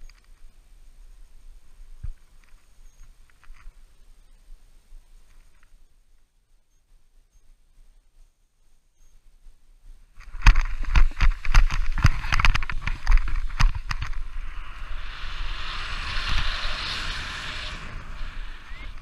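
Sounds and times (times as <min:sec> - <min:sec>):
steady rushing hiss: 0:00.0 - 0:19.0
wind rumbling on microphone: 0:09.3 - 0:19.0.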